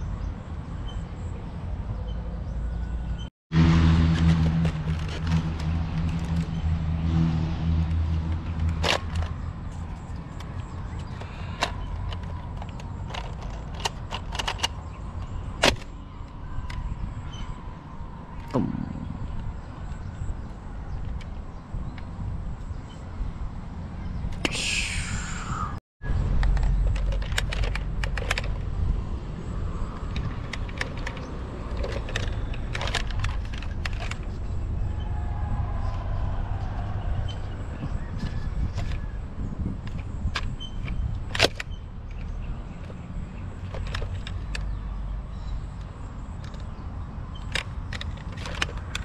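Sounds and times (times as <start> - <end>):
toy blaster plastic clicks and rattles: 10.4 - 14.8, 30.2 - 34.3, 47.4 - 49.0
low steady rumble: 18.5 - 21.0
steady low rumble: 18.5 - 27.0.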